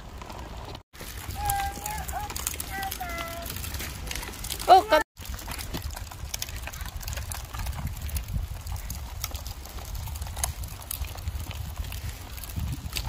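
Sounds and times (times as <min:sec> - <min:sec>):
plastic wheels rolling on paving: 0:00.0 - 0:13.0.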